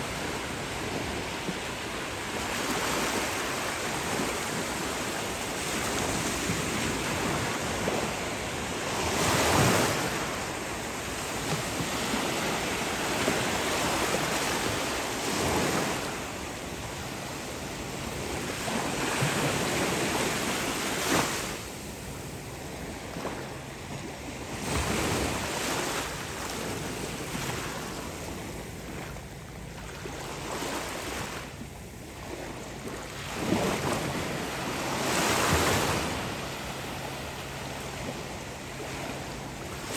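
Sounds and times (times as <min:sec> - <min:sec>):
waves washing onto beach: 0:00.0 - 0:39.9.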